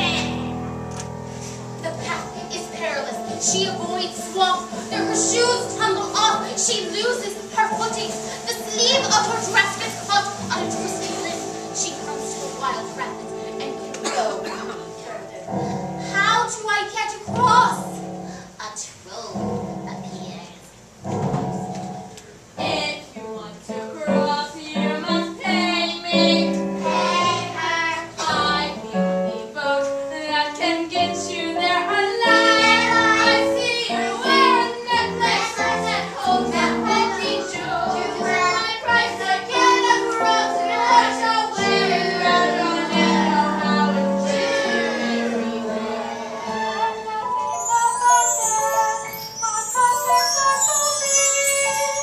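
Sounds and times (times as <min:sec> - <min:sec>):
instrumental accompaniment: 0:00.0 - 0:18.6, 0:19.3 - 0:52.0
young women singing together: 0:22.6 - 0:52.0.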